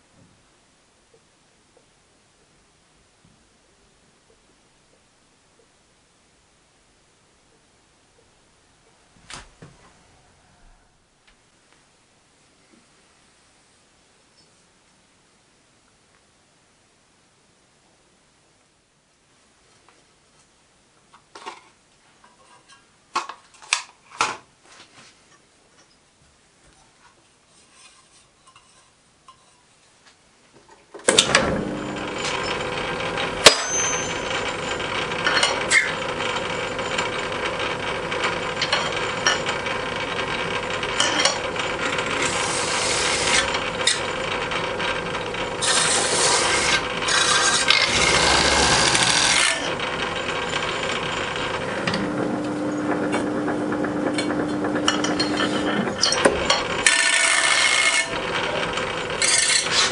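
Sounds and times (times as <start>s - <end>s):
lathe running: 31.1s - 59.9s
metal rasping against wire brush: 45.6s - 49.7s.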